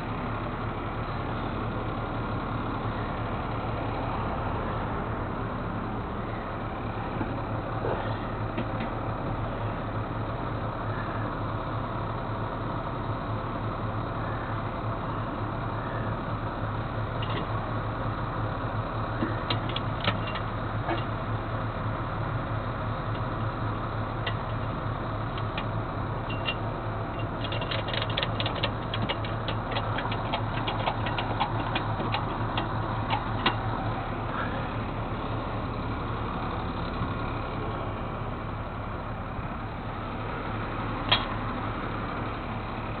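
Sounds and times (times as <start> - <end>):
vehicle engine running: 0.0 - 43.0
quick regular ticks: 27.2 - 33.6.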